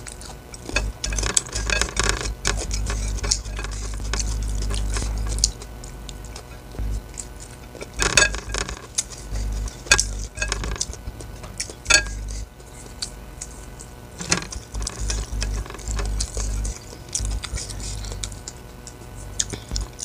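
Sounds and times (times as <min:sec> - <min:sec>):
low hum: 0:00.0 - 0:20.0
fingers scraping on plate: 0:00.6 - 0:05.6, 0:07.7 - 0:12.4, 0:14.2 - 0:18.4.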